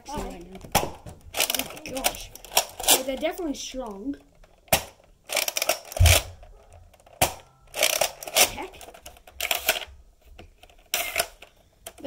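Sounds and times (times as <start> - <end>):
plastic clacks and rattles: 0.0 - 12.0
low thud: 6.0 - 6.5.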